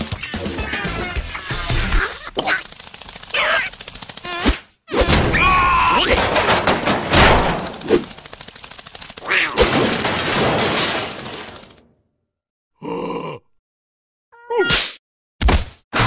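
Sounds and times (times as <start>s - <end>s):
squealing cartoon voices: 0.0s - 2.7s, 3.3s - 6.4s, 9.2s - 9.8s
cartoon clatter of hits and rattles: 0.2s - 11.9s.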